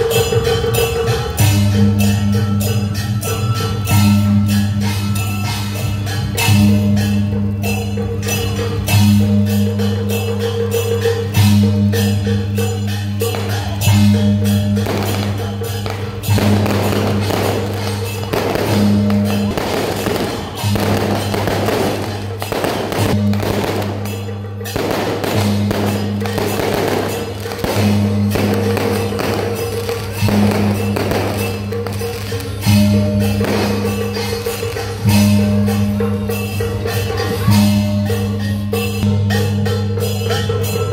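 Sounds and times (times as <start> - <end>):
firecrackers crackling: 3.8 - 35.9.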